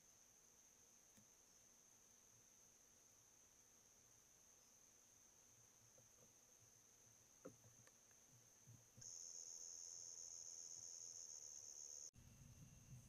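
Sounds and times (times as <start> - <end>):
insects trilling: 0.0 - 12.1.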